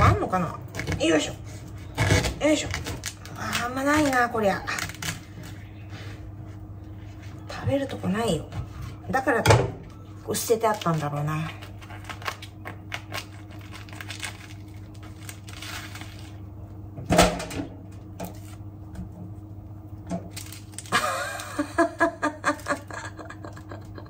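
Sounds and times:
steady low hum: 0.0s - 24.0s
bamboo husk crackling and tearing: 1.9s - 5.6s, 10.4s - 16.5s, 20.3s - 21.4s.

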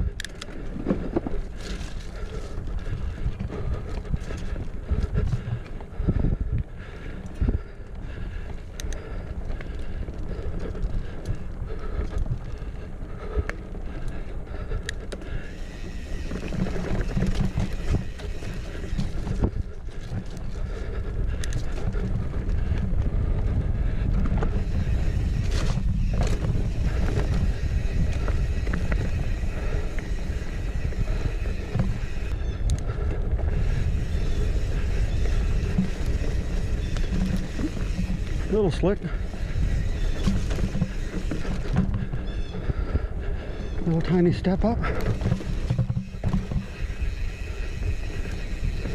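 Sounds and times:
bike tyres rumbling on dirt: 0.0s - 48.9s
wind buffeting microphone: 0.0s - 48.9s
bike knocks and rattles: 15.8s - 20.8s, 24.2s - 32.3s, 33.6s - 38.6s, 39.2s - 42.3s, 44.8s - 48.9s.

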